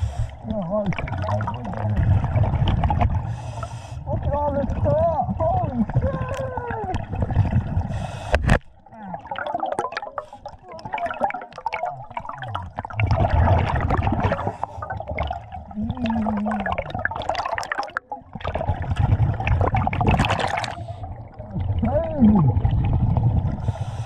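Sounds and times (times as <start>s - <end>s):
underwater diver breathing bubbles: 0.0s - 4.9s, 5.8s - 24.0s.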